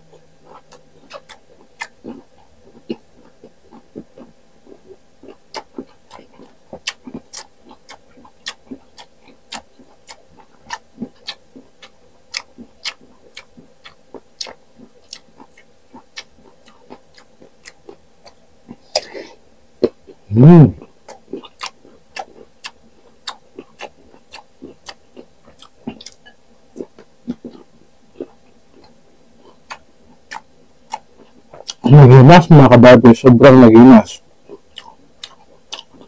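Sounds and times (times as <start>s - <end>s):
crunchy chewing: 0.0s - 32.0s, 34.2s - 36.0s
wet mouth clicks: 0.5s - 2.3s, 5.3s - 19.2s, 21.0s - 31.9s.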